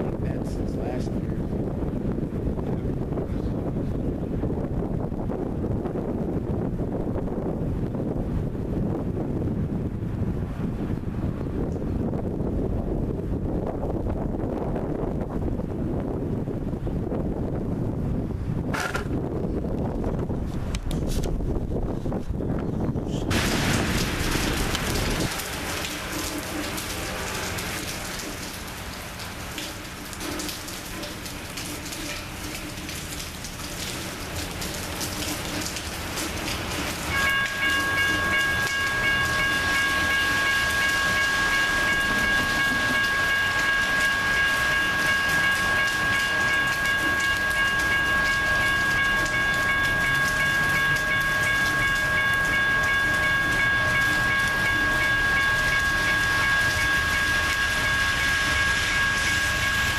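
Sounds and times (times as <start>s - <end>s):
passenger train approaching: 23.3s - 33.1s, 33.7s - 59.9s
rain falling: 23.3s - 59.9s
high-pitched ringing tone: 37.1s - 59.9s.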